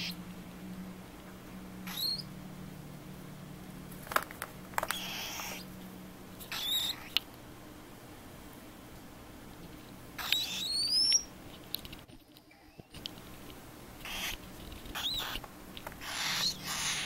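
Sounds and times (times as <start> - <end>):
cockatiel chicks raspy hissing calls: 1.8 - 2.3, 4.9 - 5.7, 6.4 - 7.2, 10.2 - 11.3, 14.0 - 15.4, 16.0 - 17.0.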